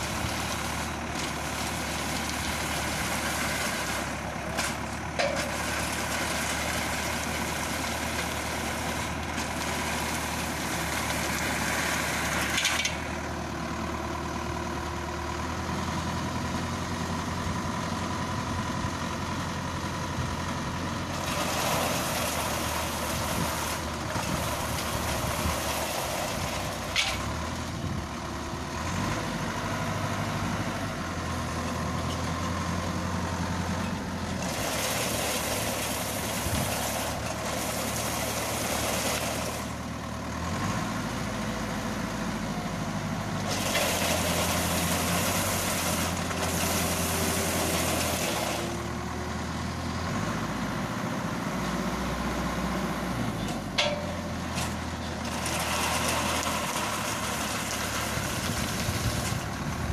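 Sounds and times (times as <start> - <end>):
machine engine running: 53.3 - 59.9.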